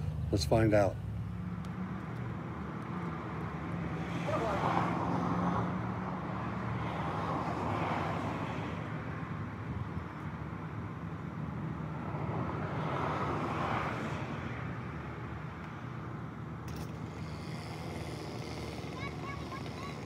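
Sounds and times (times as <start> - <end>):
engine idling: 16.6 - 20.0.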